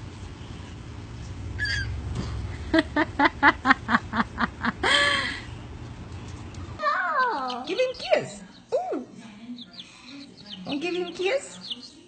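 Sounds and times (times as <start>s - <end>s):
toddler squealing: 1.6s - 1.9s.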